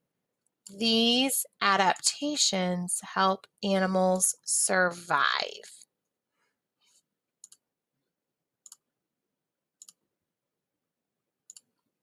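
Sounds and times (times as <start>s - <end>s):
computer mouse clicks: 7.4s - 7.6s, 8.6s - 8.8s, 9.8s - 10.0s, 11.4s - 11.9s.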